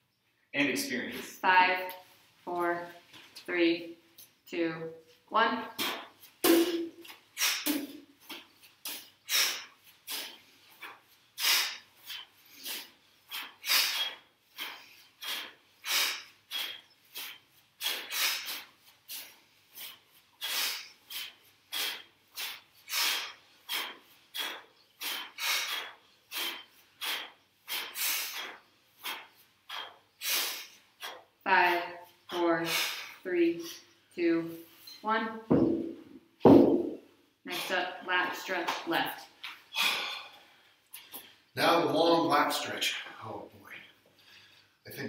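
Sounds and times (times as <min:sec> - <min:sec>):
sharp forceful exhalations: 0:05.8 - 0:08.0, 0:08.9 - 0:31.3, 0:32.6 - 0:34.9, 0:39.7 - 0:41.2.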